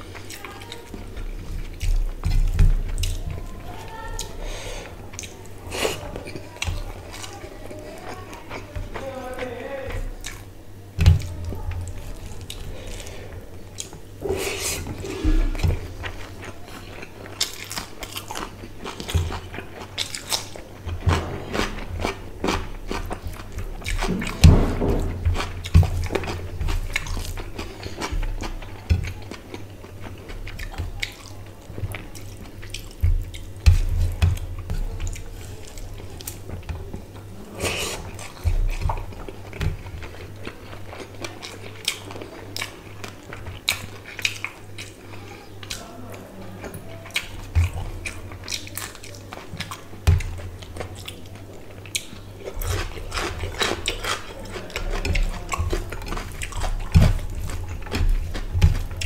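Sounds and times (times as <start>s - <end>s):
chewing and mouth sounds: 0.0s - 59.0s.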